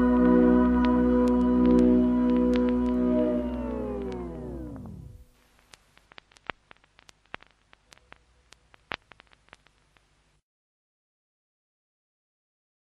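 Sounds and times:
music slowing to a stop: 0.0 - 5.3
record crackle and pops: 0.0 - 10.4.

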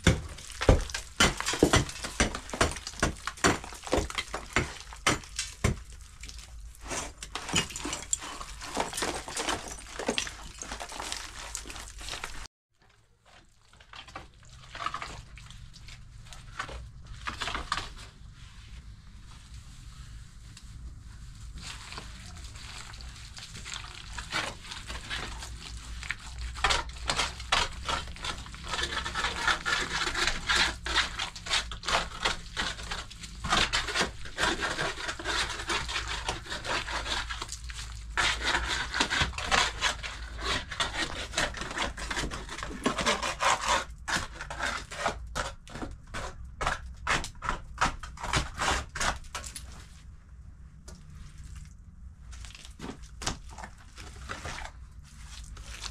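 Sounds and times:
plaster being scraped: 0.0 - 12.5, 21.5 - 49.5.

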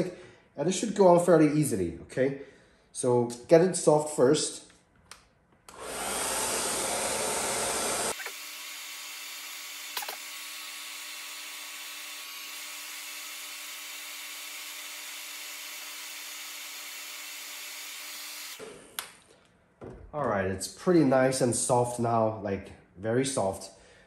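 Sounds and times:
hair dryer blowing: 5.7 - 19.1.

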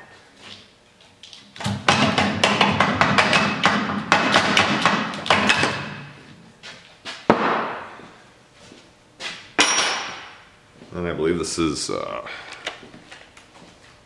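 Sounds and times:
sharp knock with rattle: 7.3 - 7.9, 9.6 - 10.4.

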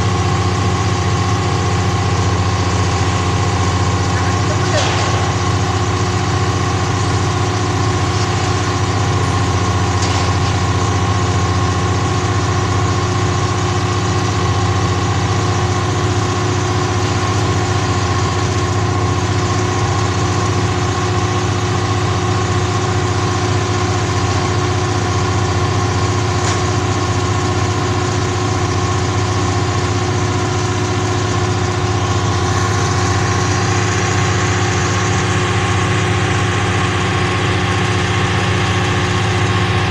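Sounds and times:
crane engine idling: 0.0 - 39.9.

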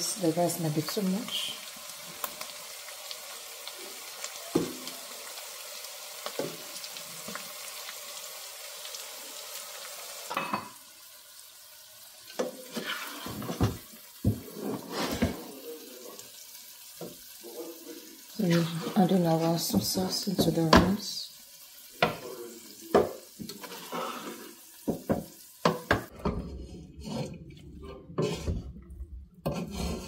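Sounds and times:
meat sizzling in a pan: 0.0 - 26.2
spoon knocking and scraping pan: 4.5 - 4.9, 6.2 - 7.5, 10.3 - 10.8, 12.3 - 15.5, 18.6 - 21.1, 22.0 - 22.3, 22.9 - 30.0.

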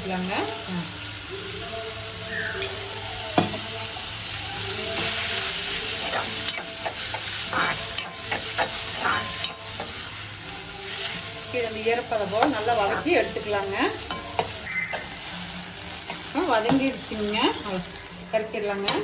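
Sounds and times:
vegetables sizzling in a pan: 0.0 - 19.0
metal spoon scraping a pan: 4.9 - 10.2, 11.9 - 15.3.

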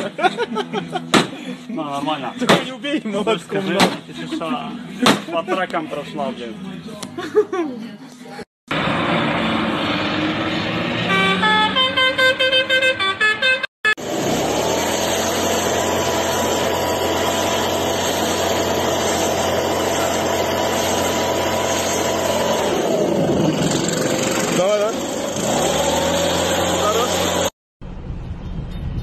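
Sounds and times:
car horn short toots: 11.0 - 13.7
motor drone with whine: 14.0 - 27.5.

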